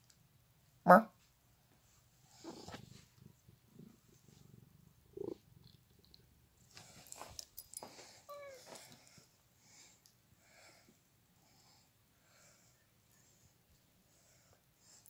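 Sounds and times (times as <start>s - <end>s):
cat purring: 2.1s - 7.1s.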